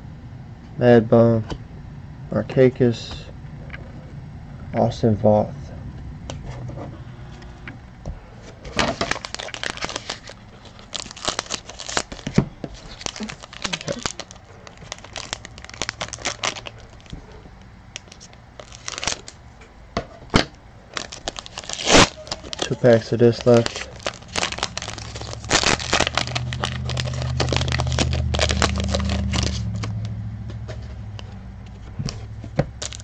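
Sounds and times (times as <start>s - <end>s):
foil wrapper crinkling: 8.7s - 19.4s, 20.9s - 30.2s, 32.2s - 33.0s
scissors cutting foil: 12.8s - 17.1s, 21.0s - 30.0s.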